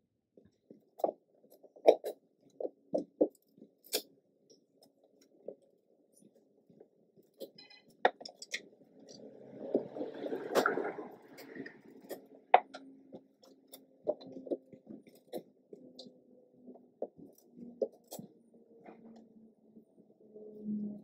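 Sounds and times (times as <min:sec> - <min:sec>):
plastic parts clicking and knocking: 0:00.5 - 0:05.7, 0:07.2 - 0:09.2.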